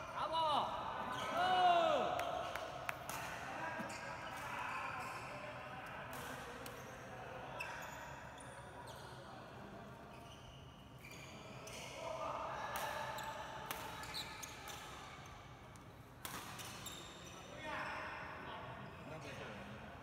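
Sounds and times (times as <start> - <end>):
sports shoes squeaking on court: 10.1 - 11.9, 14.0 - 14.6, 16.6 - 17.4.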